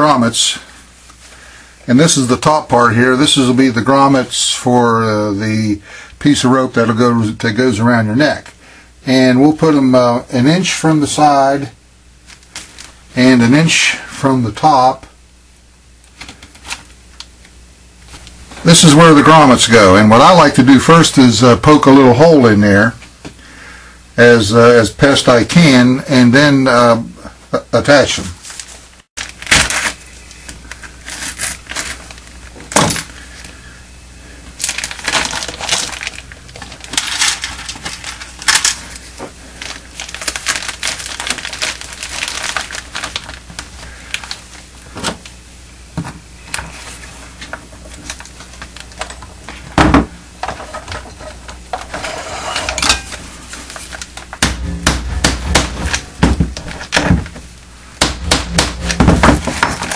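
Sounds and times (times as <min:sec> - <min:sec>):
plastic tarp crinkling: 0:28.4 - 0:33.1, 0:34.6 - 0:45.3.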